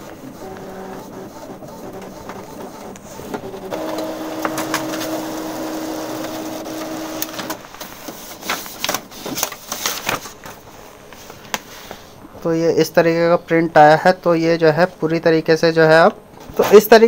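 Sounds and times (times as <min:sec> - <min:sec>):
printer motor hum: 0:00.0 - 0:08.0
sharp printer clicks: 0:00.4 - 0:07.9.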